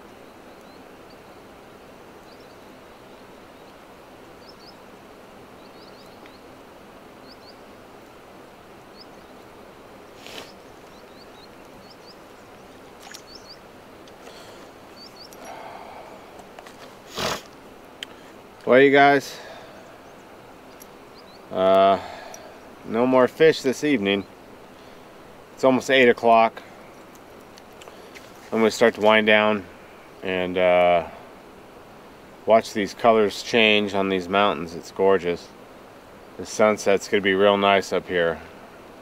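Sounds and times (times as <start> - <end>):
small bird chirping: 0.0 - 1.5, 2.2 - 3.8, 4.4 - 4.9, 5.5 - 6.5, 7.2 - 7.8, 8.8 - 16.2, 19.7 - 22.8
outdoor background rush: 0.0 - 39.0.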